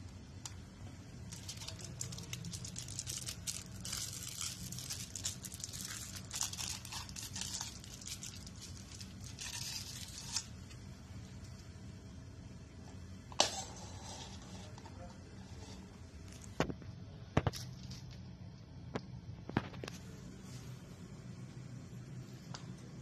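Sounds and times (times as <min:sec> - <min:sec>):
straw wrapper tearing and crinkling: 0:01.3 - 0:10.6.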